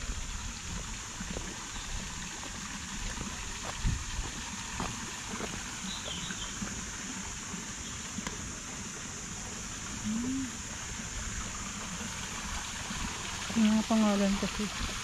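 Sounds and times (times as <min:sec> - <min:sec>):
steady high hiss: 0:00.0 - 0:14.6
bird chirp: 0:05.8 - 0:06.6.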